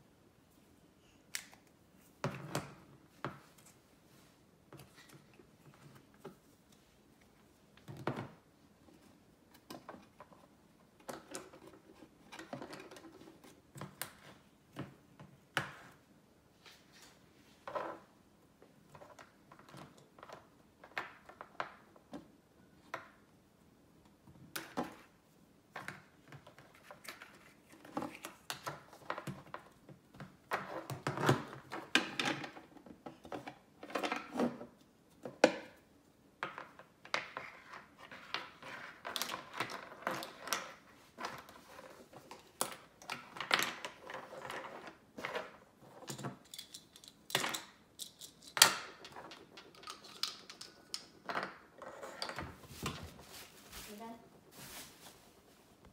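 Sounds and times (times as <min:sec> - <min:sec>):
plastic toy parts clicking on table: 0:46.1 - 0:51.2.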